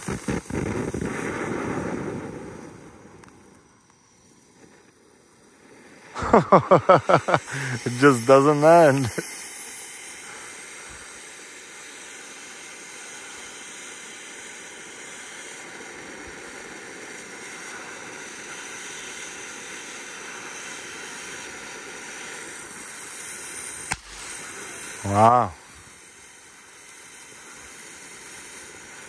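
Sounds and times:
sharp crack: 0.0s - 4.0s, 23.8s - 25.7s
firework fountain hissing: 0.0s - 29.0s.

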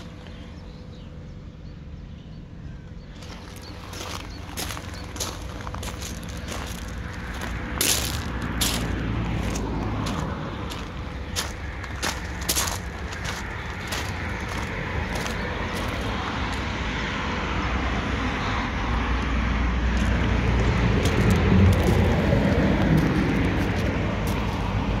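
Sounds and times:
footsteps crunching on gravel: 3.1s - 16.6s, 19.9s - 25.0s.

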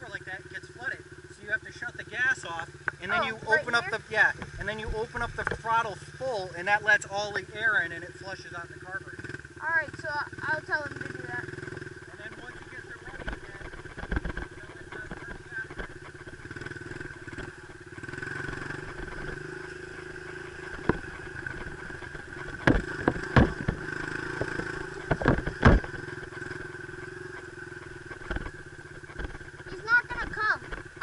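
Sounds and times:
dirt bike engine idling: 0.0s - 31.0s
sharp knocks or clatters: 20.6s - 26.6s.

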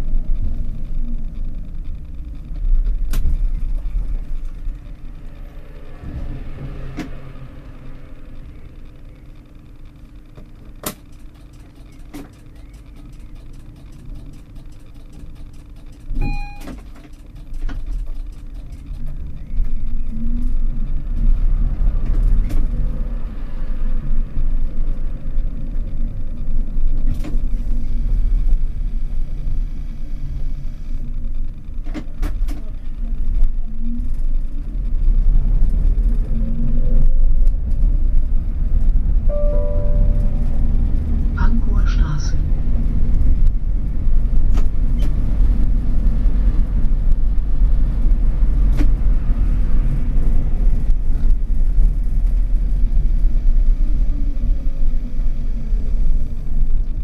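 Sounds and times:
rising motor whine: 0.0s - 10.2s, 39.0s - 41.4s
tram motors and wheels rumbling: 0.0s - 57.0s
short beep: 16.2s - 16.8s, 39.3s - 40.7s.

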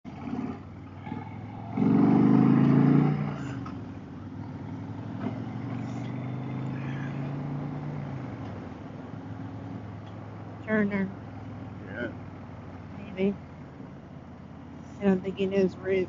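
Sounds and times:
motorcycle engine surging: 0.0s - 16.0s.

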